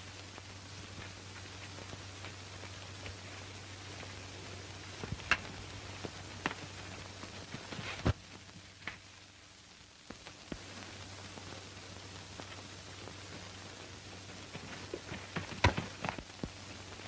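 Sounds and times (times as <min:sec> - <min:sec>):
film soundtrack hiss and hum: 0:00.0 - 0:17.0
film clicks and crackles: 0:00.1 - 0:09.3.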